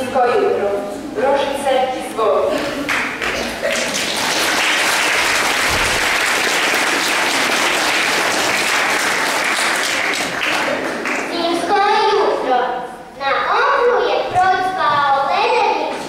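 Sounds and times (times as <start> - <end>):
audience applauding: 2.8 - 11.4
child's voice: 11.3 - 16.0.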